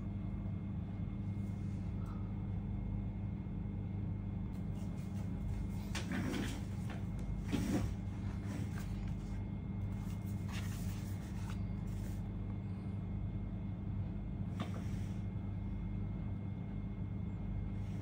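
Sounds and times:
low background hum: 0:00.0 - 0:18.0.

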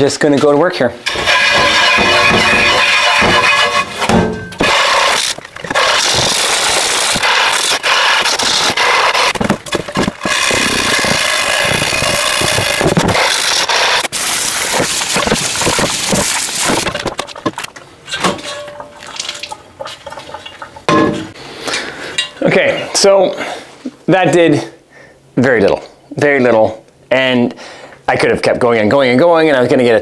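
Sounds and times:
scrubber grating on enamel pot: 0:01.0 - 0:17.0.

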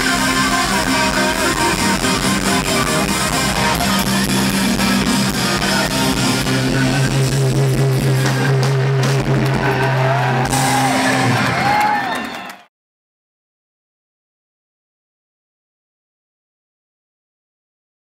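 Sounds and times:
distorted electric guitars: 0:00.0 - 0:12.4
rock band playing loudly: 0:00.0 - 0:12.5.

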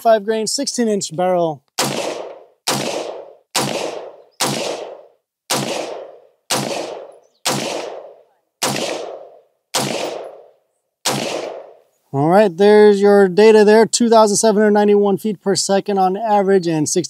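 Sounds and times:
rifle shots: 0:01.8 - 0:11.8.

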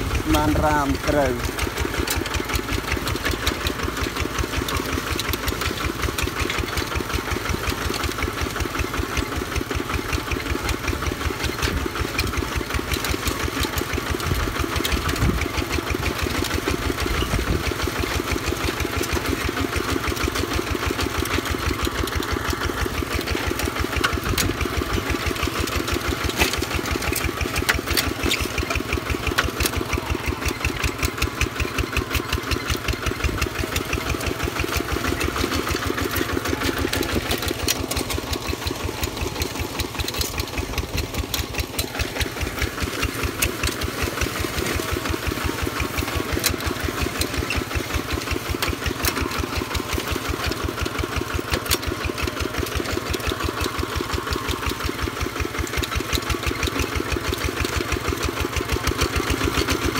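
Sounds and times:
walking tractor engine chugging: 0:00.0 - 0:59.9.

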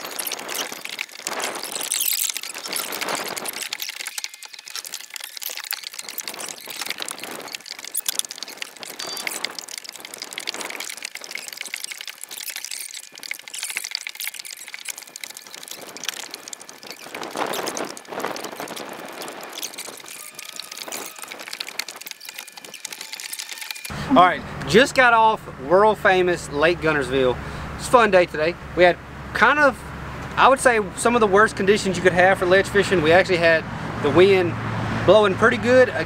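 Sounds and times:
small clicks: 0:00.0 - 0:23.9
water lapping: 0:00.0 - 0:24.3
wind gusting on microphone: 0:14.5 - 0:25.2.

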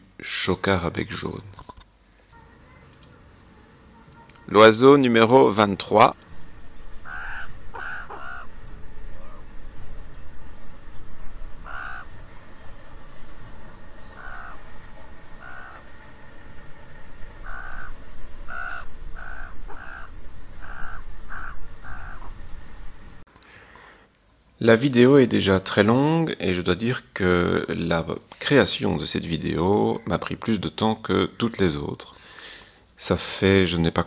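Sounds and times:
steady background noise: 0:00.0 - 0:34.0
raven calling: 0:02.3 - 0:22.6.

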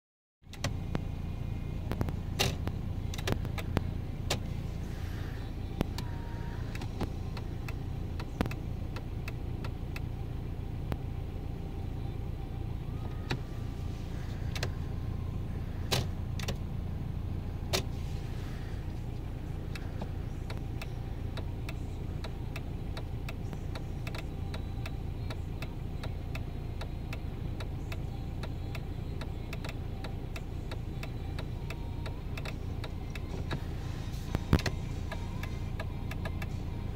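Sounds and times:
car engine idling: 0:00.4 - 0:36.9
indicator stalk and switch clicks: 0:06.7 - 0:10.1, 0:19.7 - 0:33.6, 0:34.3 - 0:36.6.

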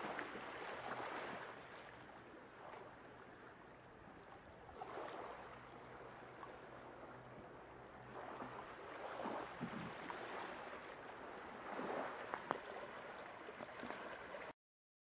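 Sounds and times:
small waves washing against rocks: 0:11.5 - 0:14.5.

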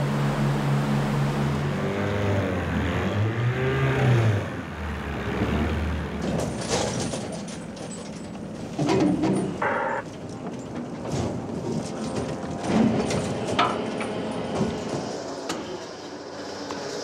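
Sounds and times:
boat motor running hard: 0:00.0 - 0:06.2.

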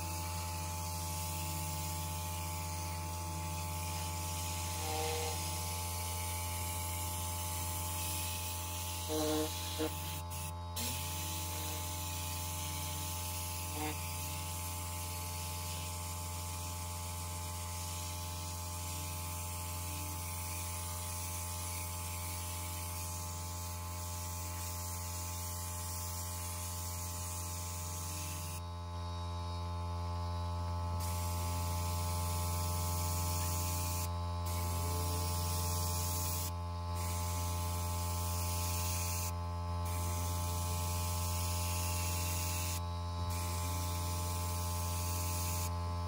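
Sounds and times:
hiss of spray and suction: 0:00.0 - 0:16.8
carpet extractor motor hum: 0:01.5 - 0:05.7.

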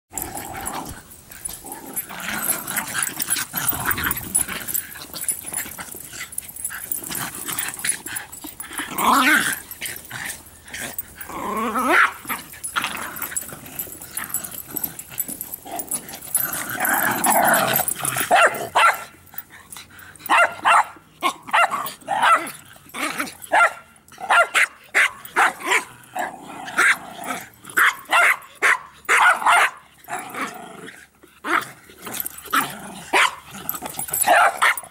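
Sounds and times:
dogs growling: 0:00.1 - 0:34.9
dogs barking sharply: 0:18.2 - 0:19.2, 0:20.3 - 0:22.5, 0:23.5 - 0:25.8, 0:27.8 - 0:29.8, 0:34.2 - 0:34.9.

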